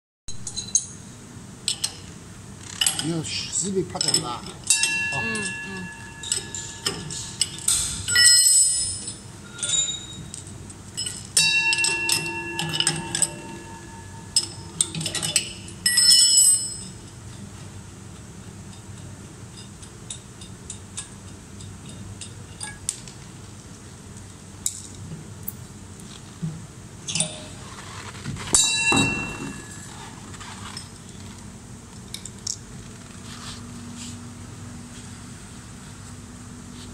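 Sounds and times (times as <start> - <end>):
steel parts clinking and ringing: 0.3 - 2.1, 3.9 - 17.5, 18.1 - 23.1, 27.0 - 27.7, 28.4 - 31.1.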